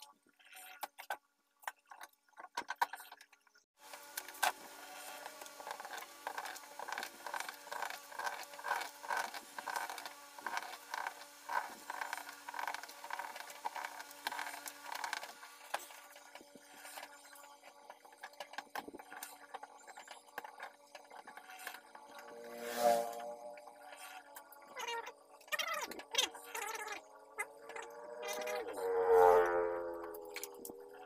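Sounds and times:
scraping on glass: 4.8s - 26.6s.

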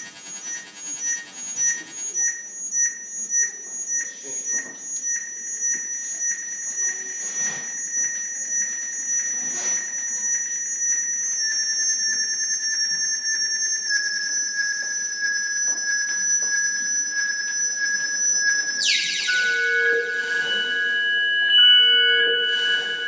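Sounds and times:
pulsing high alarm-like tones: 0.0s - 23.0s
held chord of high tones: 9.3s - 23.0s.

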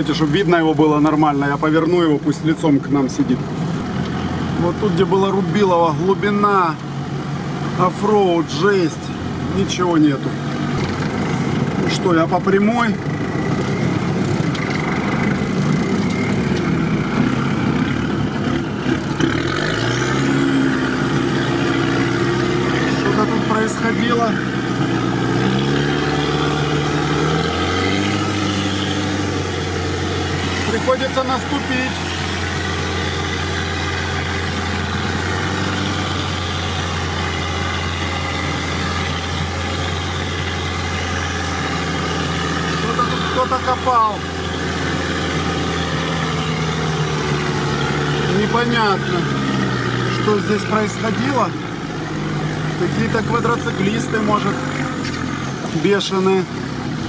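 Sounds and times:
off-road vehicle engine running: 0.0s - 57.0s.

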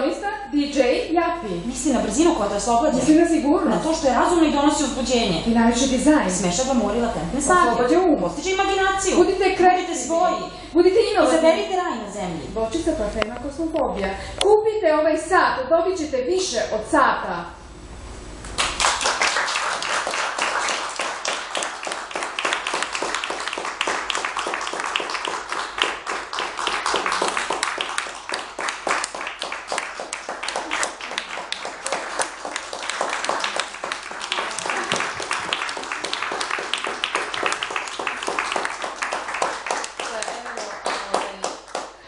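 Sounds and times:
audience applauding: 18.6s - 42.0s.

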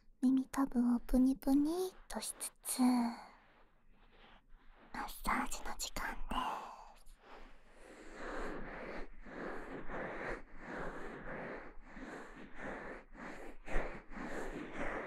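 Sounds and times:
fingers rubbing microphone ear: 3.4s - 15.0s.

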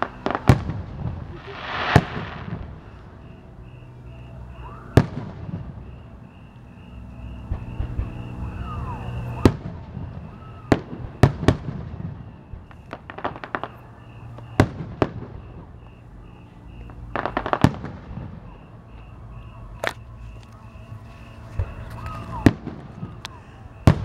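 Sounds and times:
firework shells bursting: 0.0s - 2.9s, 9.4s - 15.7s, 16.9s - 18.4s
firework crackling: 0.0s - 3.3s, 7.1s - 15.8s, 16.8s - 18.8s, 19.8s - 24.0s.

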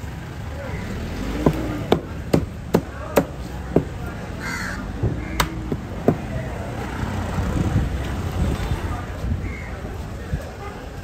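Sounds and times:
crow cawing: 4.4s - 5.4s.

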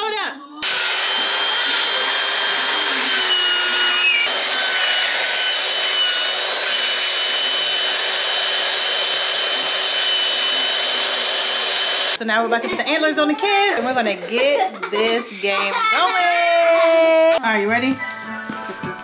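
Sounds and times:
electric air pump whirring: 0.6s - 12.2s.

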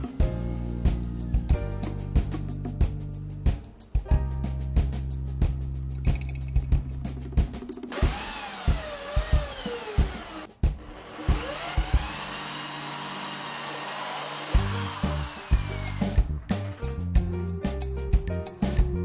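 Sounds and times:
cordless drill whining: 7.9s - 16.3s.

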